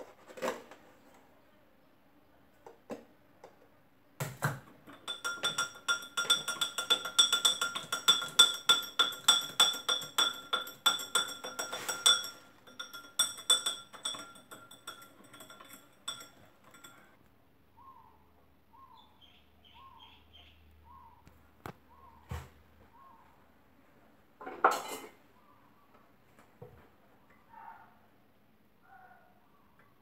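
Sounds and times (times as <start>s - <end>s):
spoon clinking in a glass: 4.9s - 17.1s.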